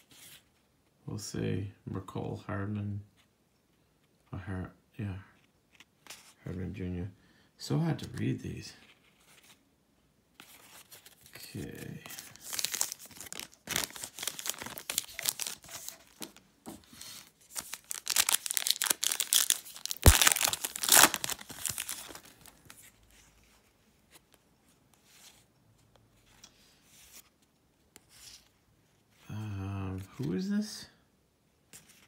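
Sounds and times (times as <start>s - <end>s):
foil wrapper crinkling and tearing: 12.2s - 16.4s, 17.1s - 22.8s.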